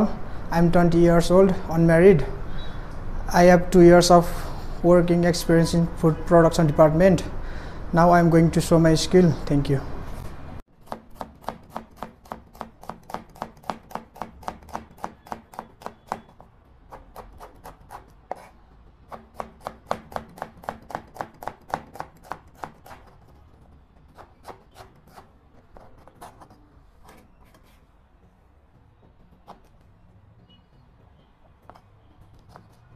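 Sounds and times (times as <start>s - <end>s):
knife chopping on plastic board: 10.8s - 26.4s.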